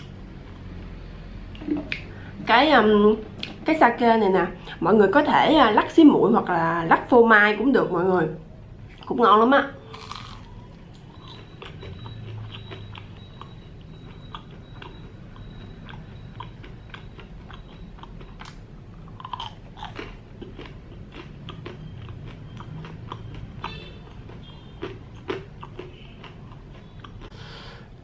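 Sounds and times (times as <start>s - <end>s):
chewing crispy fried food: 9.9s - 27.7s.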